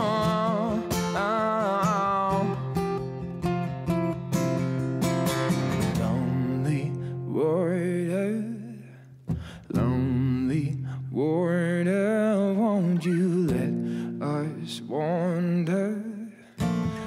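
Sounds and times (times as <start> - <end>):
person singing: 0.0 - 3.2, 5.8 - 8.9, 9.7 - 17.0
acoustic guitar: 0.0 - 17.0.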